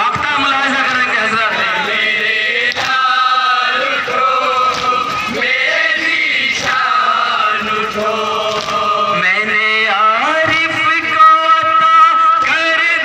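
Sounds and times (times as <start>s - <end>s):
men chanting a lament: 0.0s - 13.0s.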